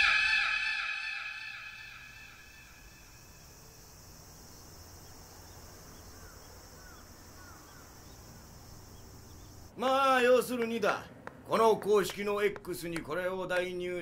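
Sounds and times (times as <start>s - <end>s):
bird chirps: 0.0s - 9.7s.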